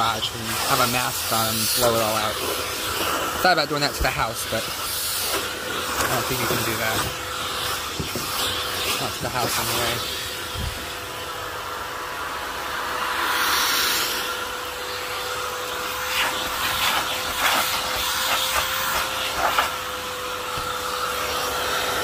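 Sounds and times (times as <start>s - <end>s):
vacuum cleaner running: 0.0s - 22.0s
nozzle knocking and scraping: 6.0s - 9.6s.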